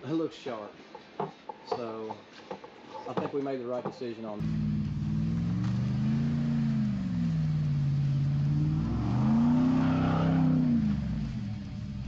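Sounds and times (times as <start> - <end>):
truck engine revving: 4.4 - 12.0.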